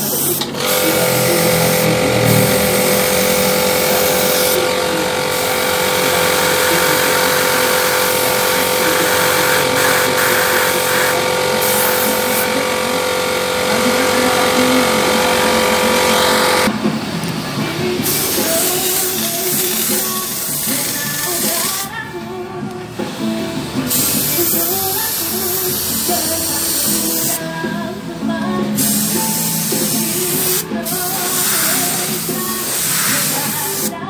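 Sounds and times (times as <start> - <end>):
spray gun hissing: 0.0 - 16.6, 18.0 - 21.9, 23.9 - 27.4, 28.8 - 34.0
air compressor humming: 0.0 - 34.0.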